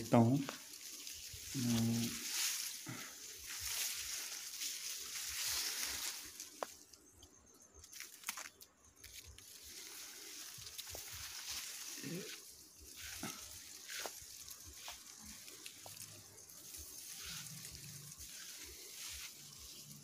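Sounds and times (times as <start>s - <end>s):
dry plants rustling: 0.0s - 20.0s
stalks snapping: 7.9s - 9.5s.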